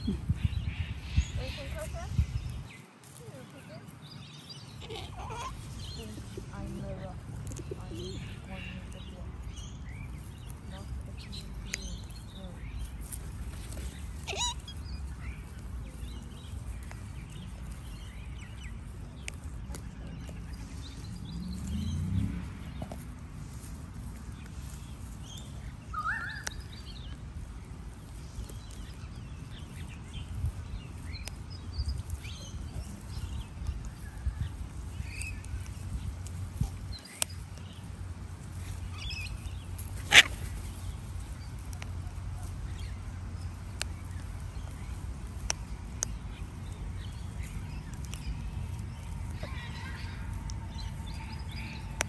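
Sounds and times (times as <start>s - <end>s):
bird chirps and calls: 0.0s - 37.9s, 38.5s - 52.0s
low rumble: 26.5s - 52.0s.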